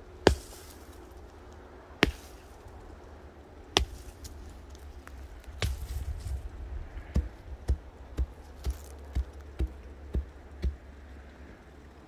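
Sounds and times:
axe chopping firewood: 0:00.0 - 0:01.3, 0:02.0 - 0:02.8, 0:03.7 - 0:06.2, 0:07.1 - 0:10.8.

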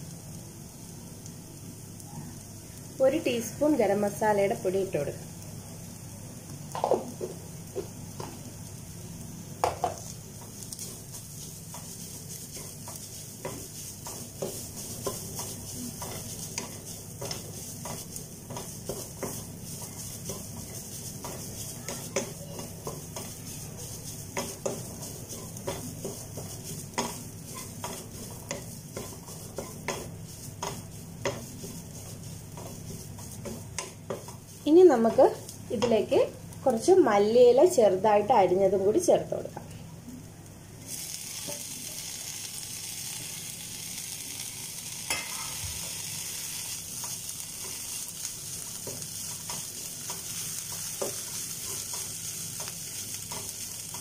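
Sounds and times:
food sizzling: 0:00.0 - 0:39.3, 0:40.1 - 0:54.0
wooden spatula scraping frying pan: 0:10.0 - 0:36.0, 0:45.1 - 0:54.0.

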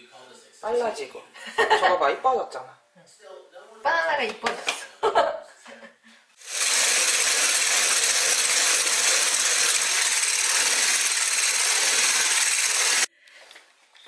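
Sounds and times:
electric hand mixer whipping cream: 0:06.4 - 0:13.1.

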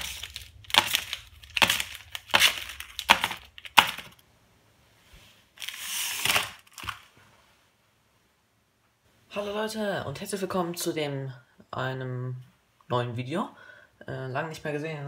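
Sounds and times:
plastic wrapper crinkling rustle: 0:00.0 - 0:04.2, 0:05.5 - 0:07.2
wrapped bars slapping on wood: 0:00.0 - 0:04.2.

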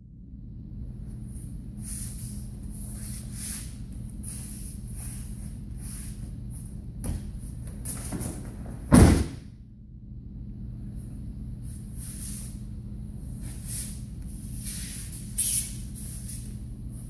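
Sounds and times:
low hum: 0:00.0 - 0:17.0
soft shuffles: 0:01.1 - 0:08.8, 0:13.3 - 0:17.0
body slapping onto mat: 0:07.0 - 0:09.4.

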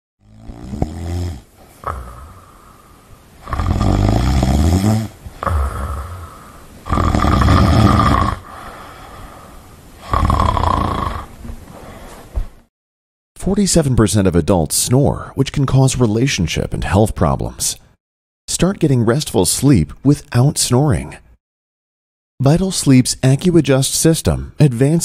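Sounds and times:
person snoring: 0:00.2 - 0:11.4
quiet breathing: 0:01.4 - 0:03.6, 0:04.8 - 0:10.3, 0:11.2 - 0:12.5.

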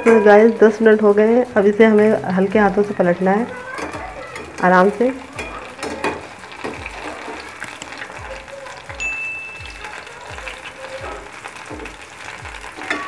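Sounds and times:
background music with low beat: 0:00.0 - 0:13.0
deep-frying sizzle in oil: 0:00.0 - 0:13.0
short high ding: 0:09.0 - 0:09.6.

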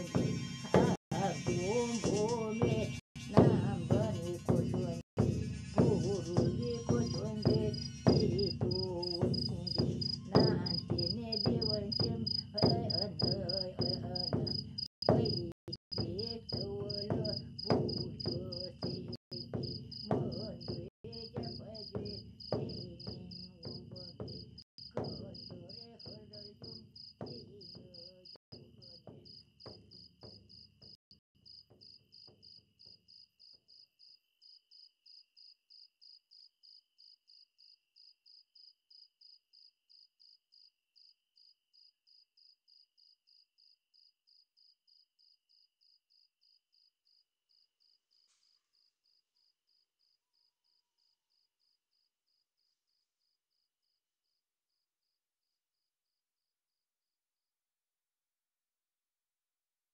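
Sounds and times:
insect chirping: 0:06.7 - 0:54.4.

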